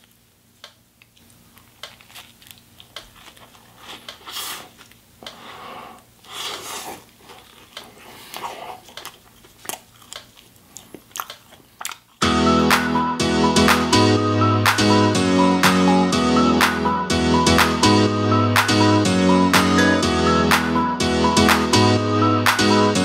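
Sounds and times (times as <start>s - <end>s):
crisp bread crust crackling: 1.0s - 5.1s
bread tearing: 1.1s - 5.0s.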